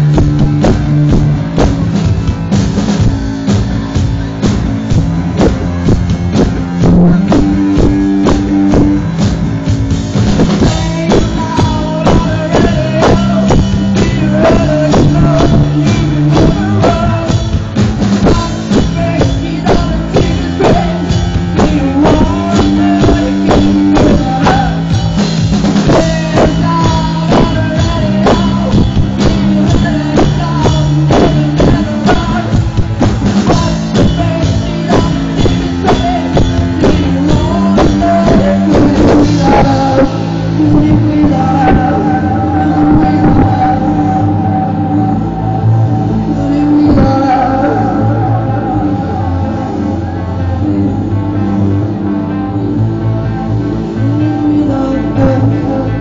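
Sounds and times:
drum kit beat: 0.0s - 52.1s
electric guitar: 0.0s - 56.0s
person singing: 0.0s - 56.0s.

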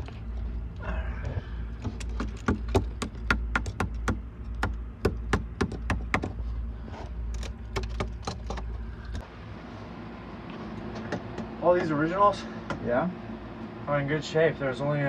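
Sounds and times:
steady low hum: 0.0s - 15.0s
metal spike tapping on wood: 2.0s - 6.3s.

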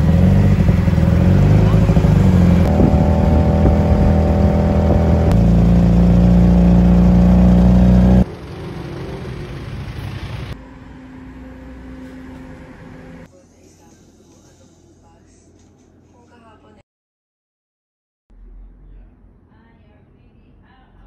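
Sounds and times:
street traffic noise: 0.0s - 13.3s
tuk-tuk engine running: 0.0s - 13.3s.

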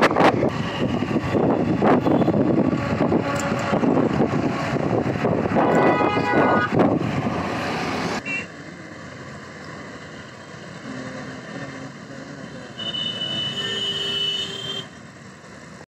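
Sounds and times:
loud rush of noise: 0.0s - 9.2s
motor vehicle passing: 0.0s - 12.6s
road traffic: 0.0s - 15.9s.

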